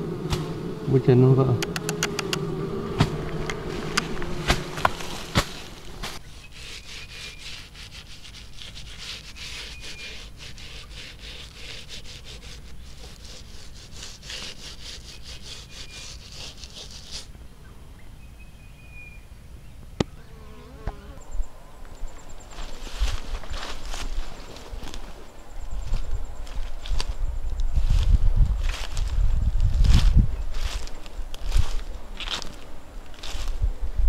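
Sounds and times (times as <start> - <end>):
sharp click: 1.6 - 2.4
paintbrush scratchy strokes: 3.4 - 17.3.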